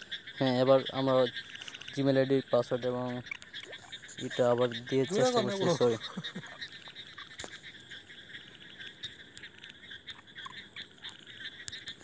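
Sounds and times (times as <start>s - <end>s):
pulsing animal calls: 3.1s - 12.0s.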